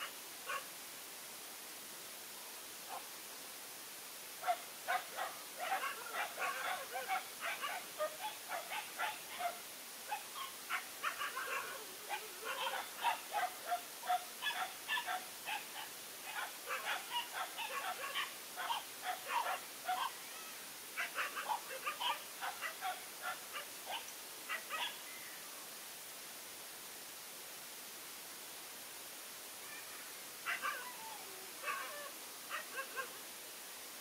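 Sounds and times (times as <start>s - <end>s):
dogs barking and yipping: 4.4s - 20.1s, 21.0s - 25.0s, 30.5s - 33.1s.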